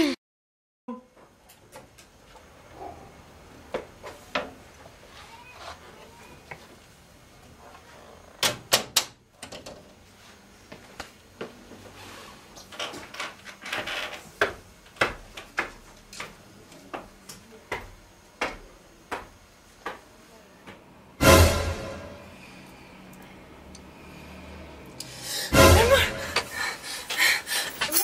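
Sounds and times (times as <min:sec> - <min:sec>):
footsteps on wooden stairs: 0:13.7 - 0:20.8.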